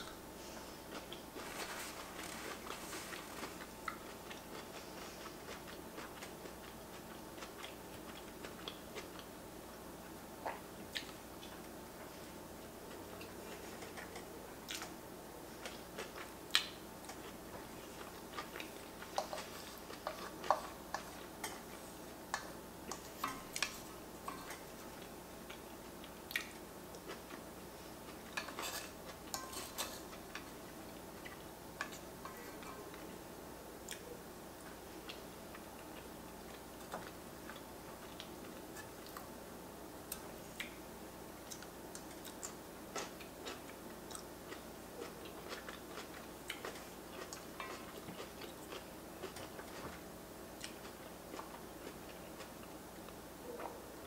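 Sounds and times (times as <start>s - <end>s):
person chewing: 15.6s - 27.4s, 41.4s - 50.0s.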